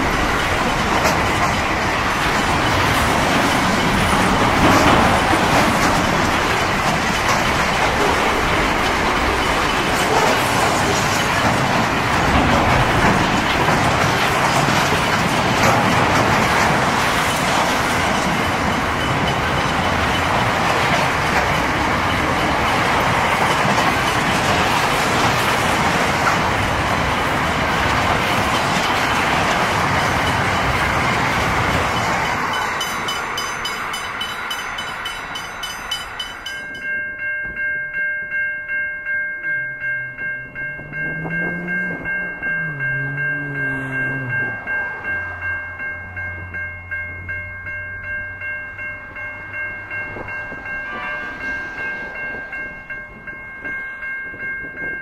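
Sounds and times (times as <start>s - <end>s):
wheels clattering over rail joints: 0.0s - 37.0s
locomotive horn chord: 40.8s - 45.0s.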